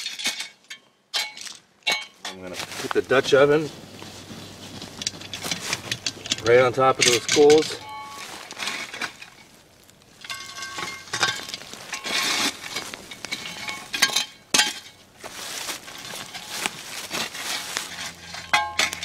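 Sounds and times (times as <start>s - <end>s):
metal shovel scraping coals: 0.0s - 19.0s
coals clinking on metal lid: 4.8s - 15.2s, 15.9s - 19.0s.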